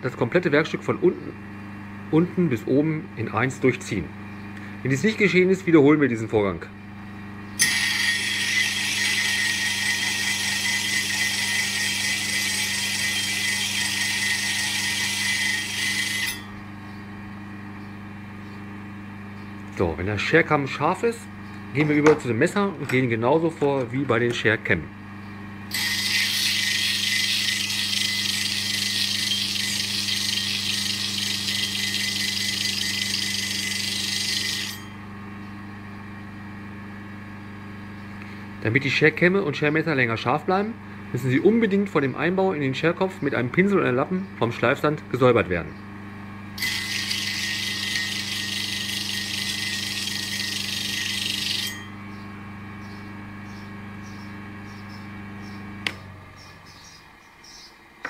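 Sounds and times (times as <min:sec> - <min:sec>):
electric motor hum: 0:06.7 - 0:38.6, 0:45.9 - 0:58.0
cutter grinding on spinning disc: 0:07.6 - 0:16.6, 0:25.7 - 0:35.1, 0:46.6 - 0:52.0.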